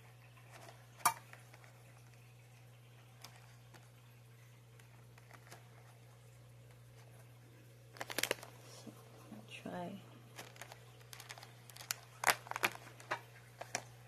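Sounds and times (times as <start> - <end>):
faint steady hum: 0.0 - 14.0
plastic fork clicking on packaging: 10.4 - 13.9.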